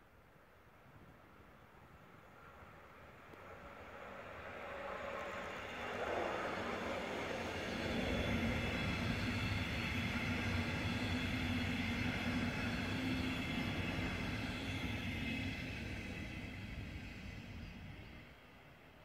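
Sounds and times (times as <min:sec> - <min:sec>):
train wheels rumbling on rail: 0:03.4 - 0:18.5.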